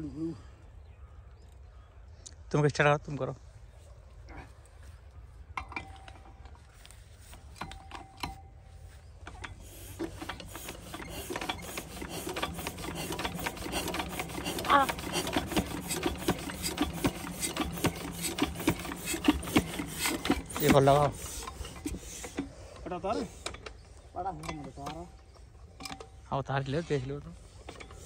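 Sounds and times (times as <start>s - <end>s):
diesel engine cranking clatter: 5.6s - 28.0s.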